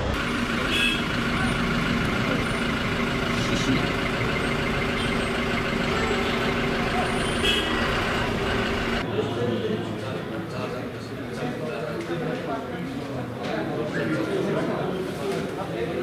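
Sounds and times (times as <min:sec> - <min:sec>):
bus engine humming: 0:00.0 - 0:09.3.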